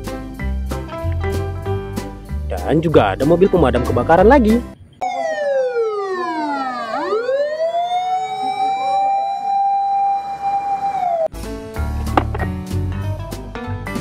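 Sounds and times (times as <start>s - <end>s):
emergency vehicle siren wailing: 5.0s - 11.3s.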